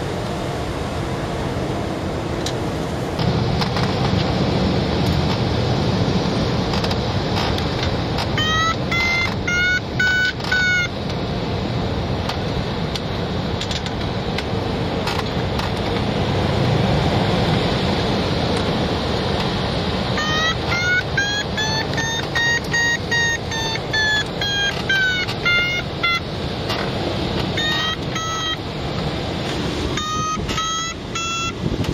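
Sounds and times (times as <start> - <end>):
airflow rushing past cockpit: 0.0 - 31.9
variometer beeping: 6.7 - 11.3, 18.5 - 31.9.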